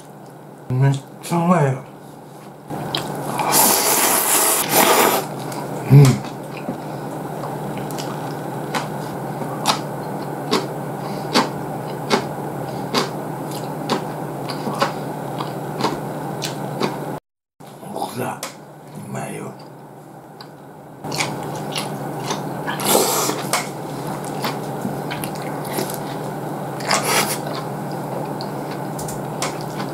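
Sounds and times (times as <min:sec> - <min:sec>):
steady low hum: 0:00.0 - 0:29.9
chewing with wet mouth clicks: 0:02.8 - 0:03.2, 0:05.4 - 0:06.8, 0:07.4 - 0:09.0, 0:09.6 - 0:10.7, 0:12.9 - 0:17.0, 0:20.4 - 0:29.9
noodles slurped loudly: 0:03.3 - 0:05.3, 0:21.1 - 0:23.6.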